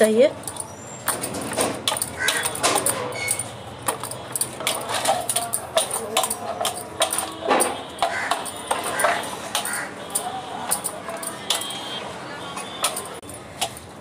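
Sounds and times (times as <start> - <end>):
bangles clinking: 0.0 - 12.0, 12.6 - 14.0
hands tapping brass plate: 1.1 - 11.8.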